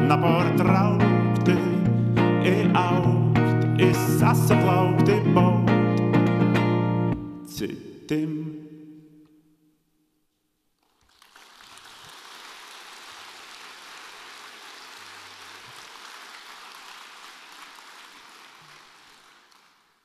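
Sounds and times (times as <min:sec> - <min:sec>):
audience applauding: 0:10.8 - 0:20.0.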